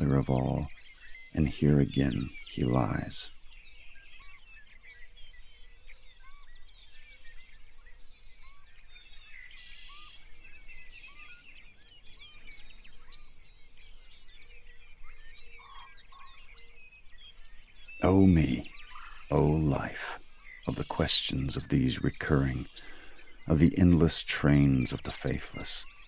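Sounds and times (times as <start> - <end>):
buzzy bird trill: 0.0 - 6.7, 7.3 - 26.0
birds chirping and calling: 0.0 - 26.0
low bird call: 0.0 - 26.0.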